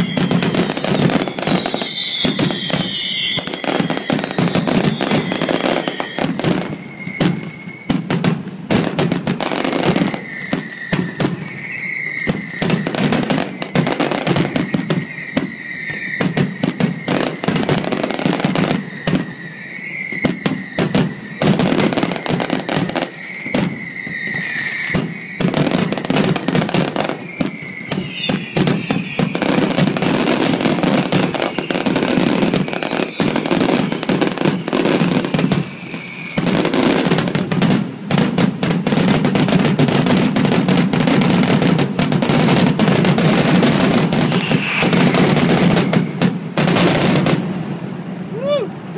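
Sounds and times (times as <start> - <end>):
wavering high tone: 0.0 - 7.9
fireworks bangs and crackling: 0.0 - 48.9.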